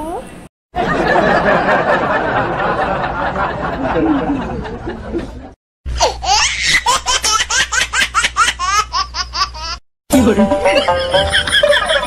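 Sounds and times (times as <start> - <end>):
high-pitched rhythmic laughter: 10.6 - 12.0.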